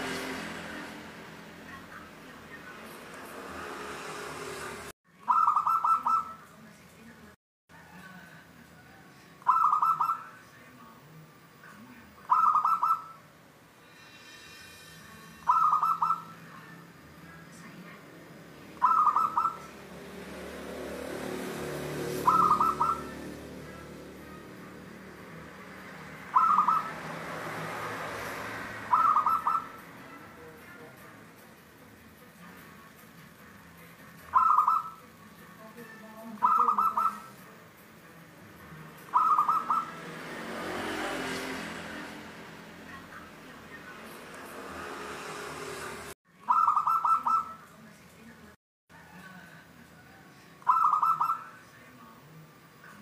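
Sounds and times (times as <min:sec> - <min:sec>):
dove cooing: 0:05.3 - 0:06.4, 0:09.5 - 0:10.2, 0:12.3 - 0:13.1, 0:15.5 - 0:16.3, 0:18.8 - 0:19.7, 0:22.0 - 0:23.8, 0:26.2 - 0:27.2, 0:28.9 - 0:29.8, 0:34.3 - 0:35.0, 0:36.4 - 0:37.4, 0:39.1 - 0:40.0, 0:46.5 - 0:47.6, 0:50.6 - 0:51.4.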